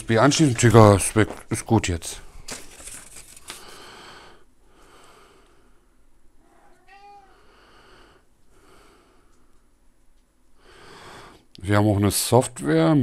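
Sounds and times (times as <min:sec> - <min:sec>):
paper leaflet rustling: 0:02.4 - 0:03.9
cat meowing: 0:06.4 - 0:07.6.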